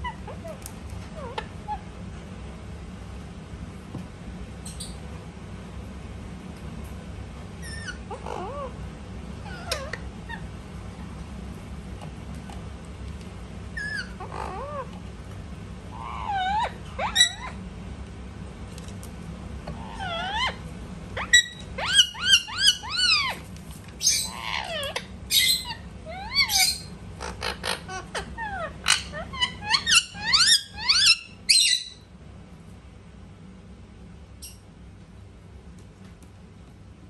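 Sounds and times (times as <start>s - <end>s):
parakeet squeaky chirps: 4.6s - 5.0s, 7.6s - 8.7s, 9.4s - 10.5s, 13.8s - 14.9s, 16.0s - 17.6s, 19.8s - 20.6s, 21.2s - 23.4s, 24.0s - 32.1s.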